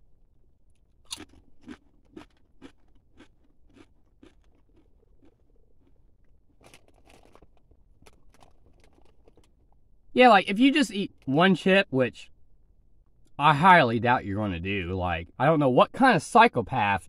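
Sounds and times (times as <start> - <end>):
chips being crunched: 1.0 - 9.5
chip bag crinkling: 1.1 - 9.7.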